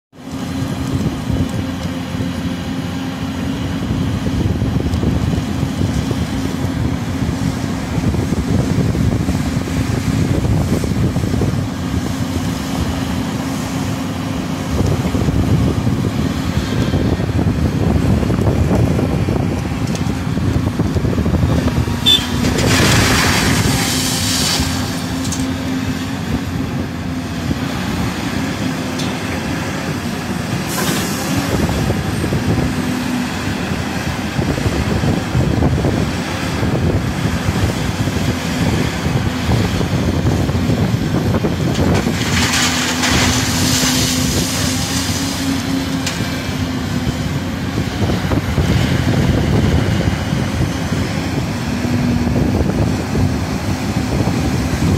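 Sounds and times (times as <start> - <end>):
excavator engine and hydraulics: 0.2 - 54.9
stone pouring into truck bed: 22.3 - 25.4, 41.8 - 45.6.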